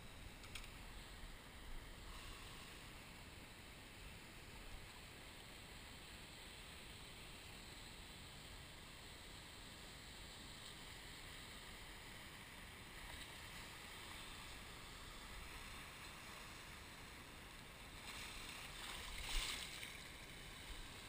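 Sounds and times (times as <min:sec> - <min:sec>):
shallow sea water washing: 0:12.4 - 0:21.0.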